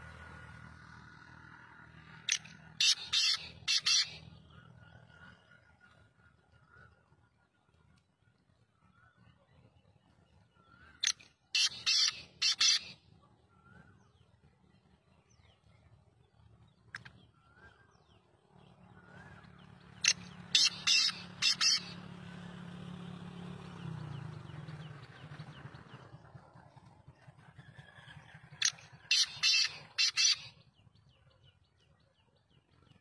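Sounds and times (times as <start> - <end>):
francolin calling: 2.3 - 4.2, 20.0 - 22.0.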